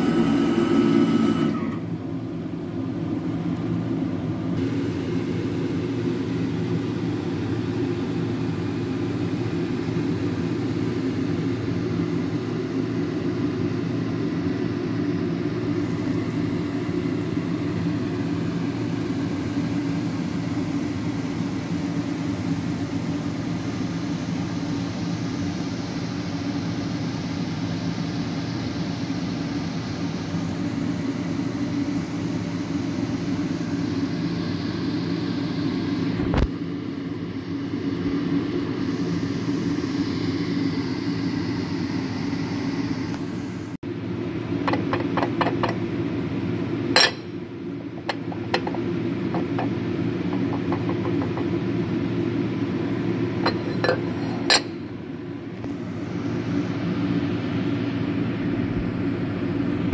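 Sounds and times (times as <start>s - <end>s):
machine tool humming: 4.6s - 13.0s.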